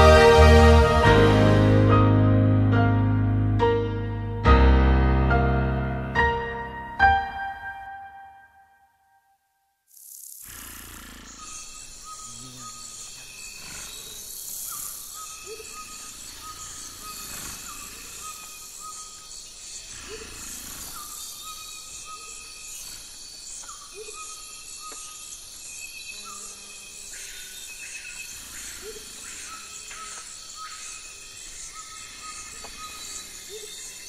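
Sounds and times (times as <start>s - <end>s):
high insect-like chirring: 9.9s - 34.0s.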